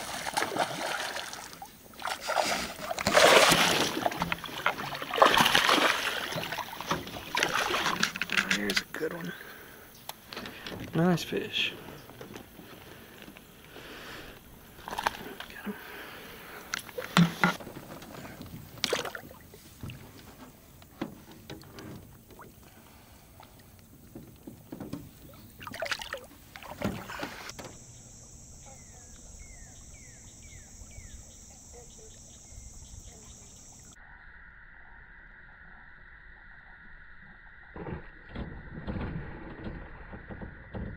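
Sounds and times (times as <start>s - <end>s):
water splashing: 0.0s - 27.5s.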